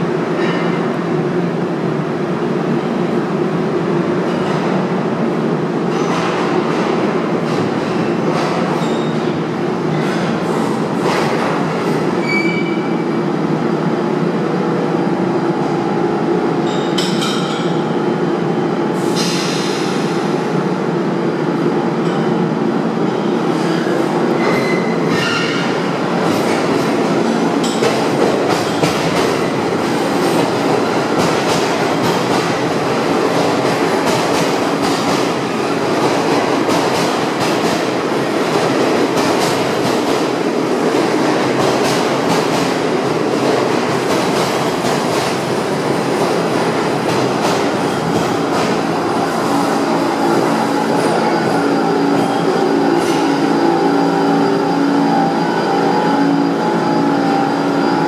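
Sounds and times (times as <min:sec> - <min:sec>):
subway train wheels rumbling: 0:00.0 - 0:58.0
high wheel squeals: 0:12.2 - 0:13.0.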